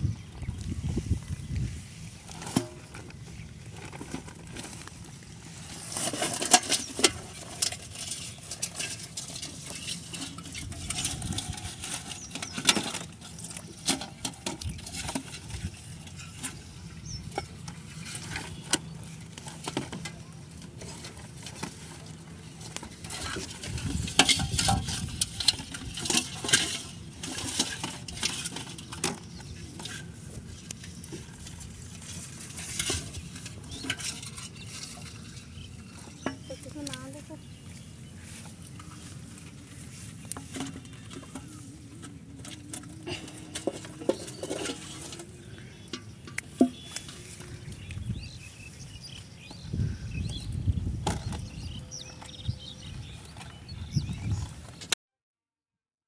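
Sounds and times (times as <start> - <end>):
plastic scraping and knocking: 40.2 - 48.1.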